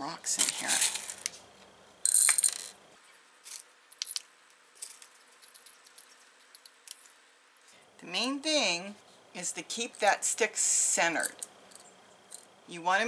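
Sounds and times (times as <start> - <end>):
pebbles rattling in plastic cup: 0.3 - 1.4, 2.1 - 2.8, 3.4 - 7.1.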